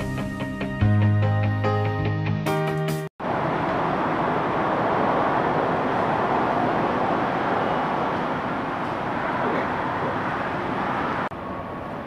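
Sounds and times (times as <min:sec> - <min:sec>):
rushing engine noise: 0:03.2 - 0:12.0.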